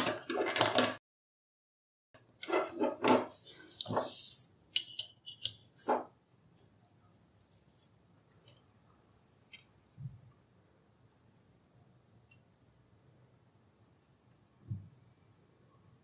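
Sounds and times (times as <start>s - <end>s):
ruler sliding scrape on paper: 2.5s - 4.5s.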